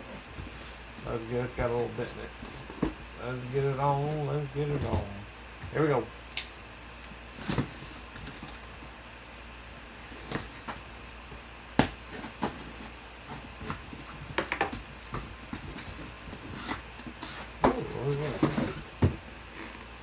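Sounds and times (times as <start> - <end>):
cardboard knocks and scrapes: 11.8 - 19.2.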